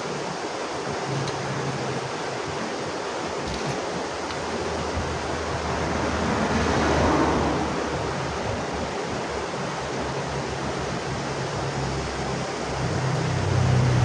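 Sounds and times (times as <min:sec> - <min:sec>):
steady rushing noise: 0:00.0 - 0:14.0
low engine-like hum: 0:04.0 - 0:14.0.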